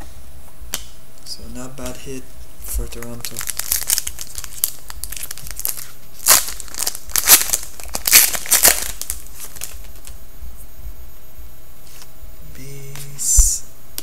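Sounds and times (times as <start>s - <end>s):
plastic wrapper crinkling: 2.8s - 10.2s.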